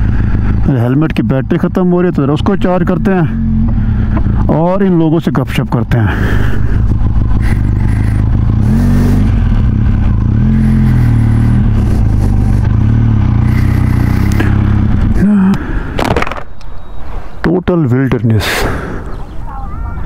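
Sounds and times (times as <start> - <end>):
motorcycle engine running: 0.0 - 15.9
road and wind noise: 0.0 - 20.0.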